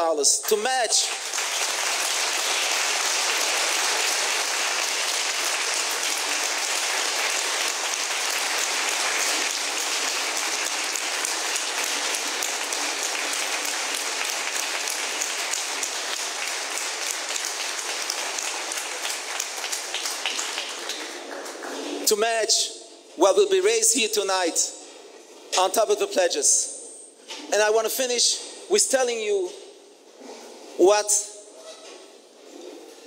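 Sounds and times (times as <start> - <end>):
audience applauding: 0.4 - 22.0.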